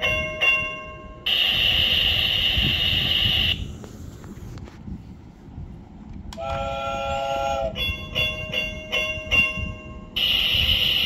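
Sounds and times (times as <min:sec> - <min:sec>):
toy train whistle: 0:06.4 - 0:08.4, 0:10.2 - 0:11.0.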